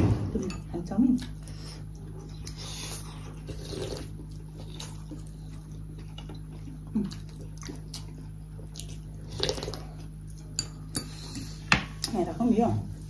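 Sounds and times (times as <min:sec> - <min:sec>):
steady low hum: 0:00.0 - 0:13.0
noodles slurped and chewed: 0:01.4 - 0:10.1.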